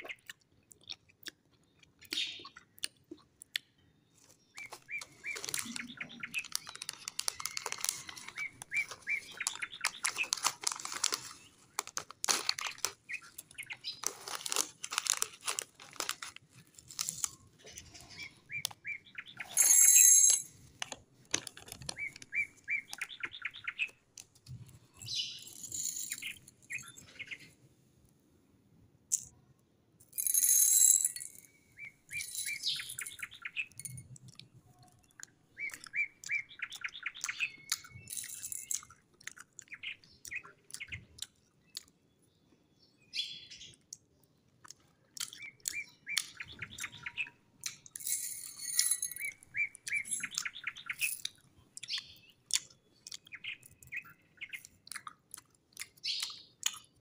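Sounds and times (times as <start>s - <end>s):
birds chirping: 3.6s - 16.3s, 17.0s - 27.6s, 30.2s - 43.8s, 45.2s - 55.2s
candy balls rattling on glass dish: 5.2s - 13.0s, 19.4s - 20.6s, 25.0s - 27.0s, 30.0s - 31.5s, 32.1s - 34.2s, 37.8s - 38.9s, 47.8s - 51.4s.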